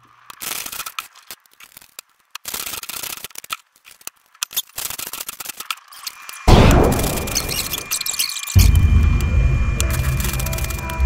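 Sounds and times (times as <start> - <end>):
sharp clicks: 0.2 - 11.0.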